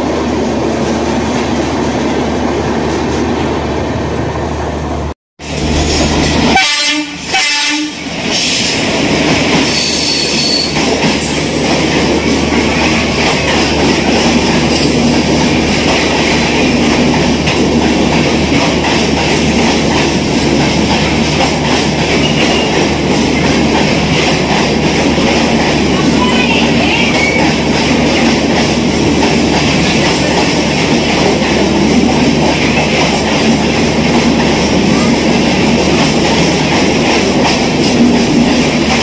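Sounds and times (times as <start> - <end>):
train horn: 6.4 - 8.1
train wheels clattering on rails: 7.3 - 39.0.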